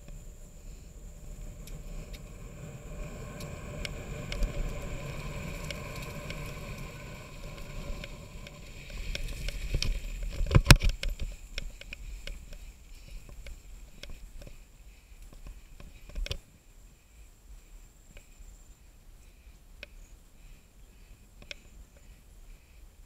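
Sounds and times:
bike rattling and clicking: 0:00.0 - 0:16.4
bike tyres rumbling on trail: 0:00.0 - 0:16.6
bike knocking over rough gravel: 0:03.9 - 0:14.5.

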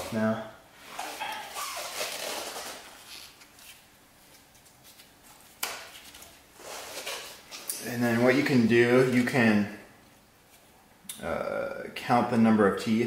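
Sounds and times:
rubber belt rustling and scraping: 0:00.0 - 0:09.4.

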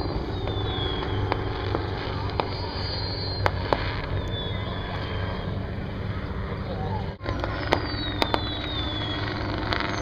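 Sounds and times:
firework whistles falling in pitch: 0:00.0 - 0:05.6, 0:07.2 - 0:10.0
helicopter rotor and engine drone: 0:00.0 - 0:10.0
firework cracks: 0:00.5 - 0:04.5, 0:07.2 - 0:10.0.

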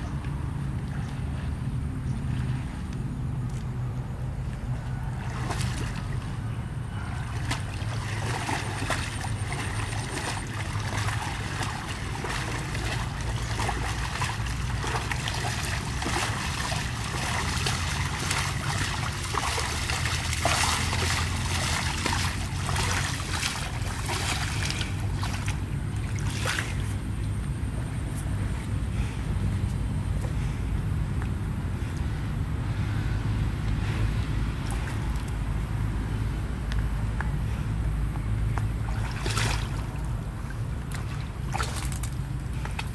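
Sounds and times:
animal splashing in water: 0:05.1 - 0:06.4, 0:07.0 - 0:26.9, 0:38.8 - 0:42.9.

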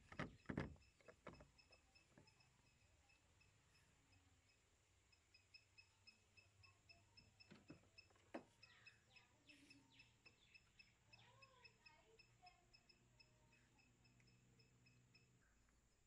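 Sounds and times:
faint clicks: 0:00.0 - 0:15.8
faint even ticking: 0:00.0 - 0:16.0
faint bird calls: 0:08.6 - 0:15.7.

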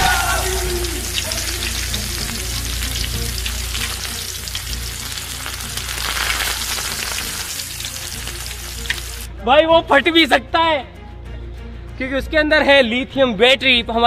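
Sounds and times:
deep-frying sizzle in oil: 0:00.0 - 0:09.3.

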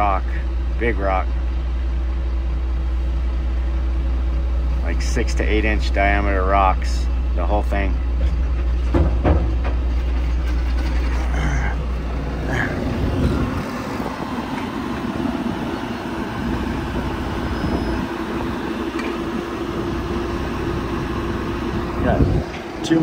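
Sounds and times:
excavator diesel engine running: 0:00.0 - 0:23.0
steady hum: 0:00.0 - 0:23.0
deep low rumble: 0:07.9 - 0:18.1.

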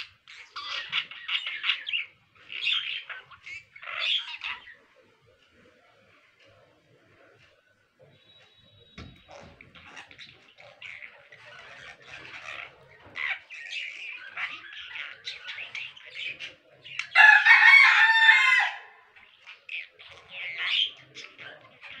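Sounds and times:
loud crowing call: 0:17.2 - 0:19.1.

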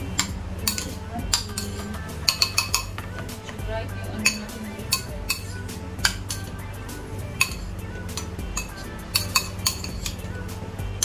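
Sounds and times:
soft background music: 0:00.0 - 0:11.0
metal spoon clinking on bowl: 0:00.2 - 0:03.0, 0:04.2 - 0:06.5, 0:07.4 - 0:10.3.

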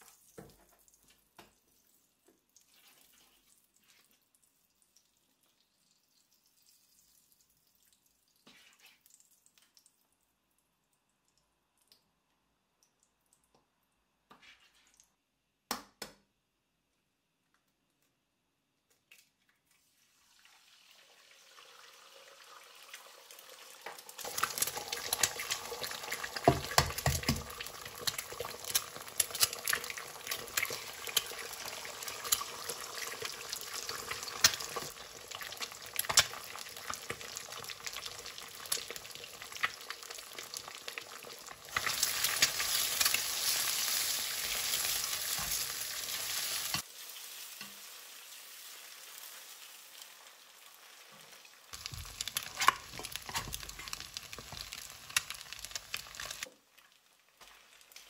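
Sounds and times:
eggs sizzling and popping in oil: 0:00.0 - 0:16.5, 0:17.2 - 0:58.0
spatula stirring eggs: 0:23.9 - 0:47.9, 0:51.7 - 0:58.0.

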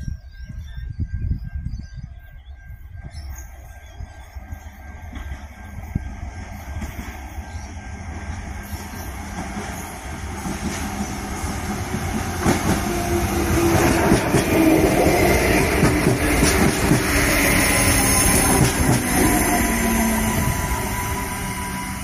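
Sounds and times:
wind rumbling on microphone: 0:00.0 - 0:04.2
train engine hum: 0:00.0 - 0:22.0.

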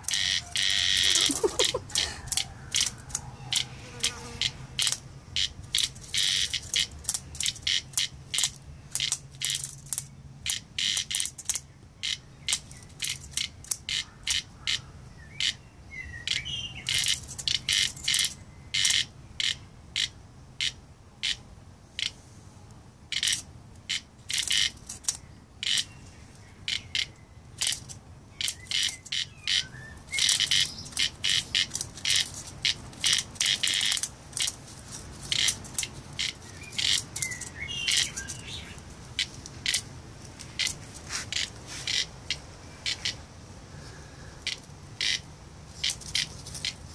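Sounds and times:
cicada buzzing: 0:00.0 - 0:22.2, 0:23.1 - 0:46.9
faint bird chirping: 0:25.1 - 0:31.8, 0:36.1 - 0:39.0.

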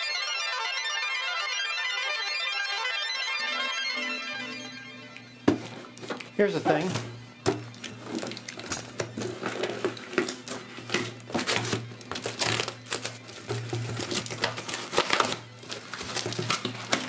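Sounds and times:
cardboard crinkling and scraping: 0:05.4 - 0:17.0
packing tape pulled away: 0:08.0 - 0:17.0.

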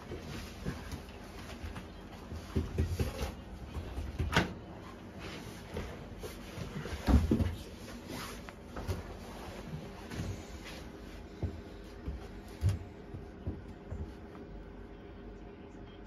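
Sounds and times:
knocks and bumps of handling things: 0:06.7 - 0:07.8.

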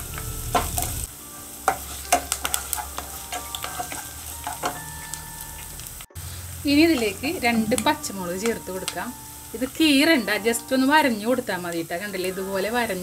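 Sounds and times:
vegetables sizzling in oil: 0:00.0 - 0:13.0
spatula scraping pan: 0:01.6 - 0:05.2.

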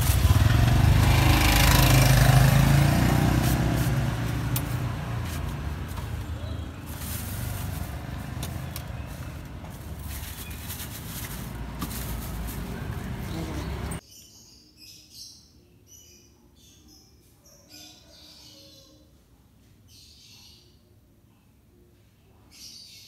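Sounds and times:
street noise rumble: 0:00.0 - 0:14.0.

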